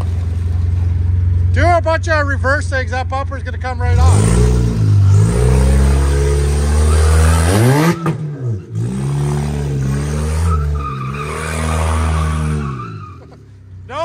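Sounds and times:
wheels spinning on wet concrete: 0.0s - 1.6s
car engine revving: 0.0s - 14.0s.

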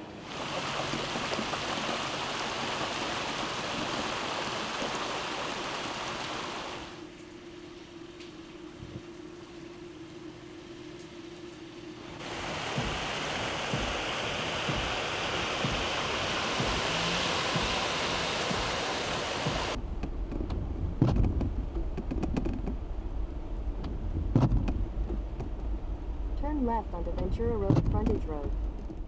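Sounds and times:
rain hissing: 0.0s - 19.8s
wind on microphone: 8.8s - 9.1s
low rumble: 12.2s - 29.0s.

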